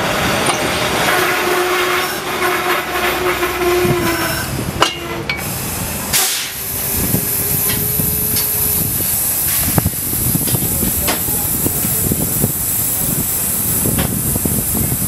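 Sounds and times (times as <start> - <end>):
air brakes rush and hiss: 0.0 - 15.0
trolley whine: 0.0 - 15.0
metallic clanks: 0.4 - 1.2, 4.8 - 5.5.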